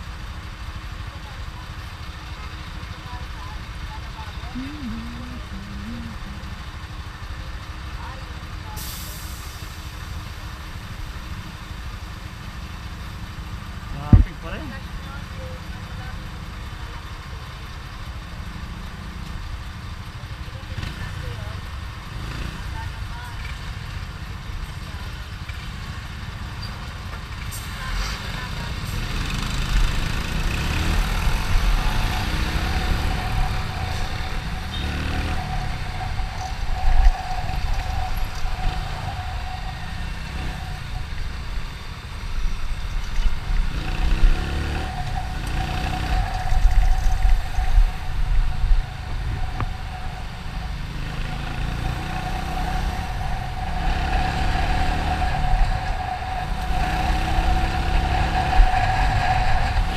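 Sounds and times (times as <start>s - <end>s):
motorcycle engine accelerating: 1.1s - 8.5s, 28.1s - 59.9s
steady high tone: 4.5s - 6.9s, 31.2s - 42.5s, 44.4s - 59.9s
wind rumble on microphone: 30.9s - 59.9s.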